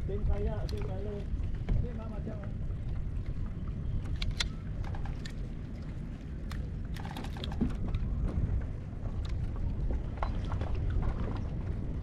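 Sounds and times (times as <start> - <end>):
wind rumble on microphone: 0.0 - 12.0
fishing gear clicks and knocks: 0.5 - 1.9, 4.0 - 8.4.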